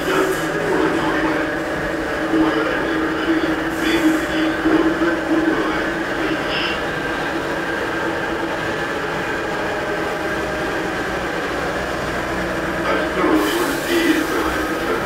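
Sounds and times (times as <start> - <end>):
train car running hum: 0.0 - 15.0
hiss: 13.4 - 14.9.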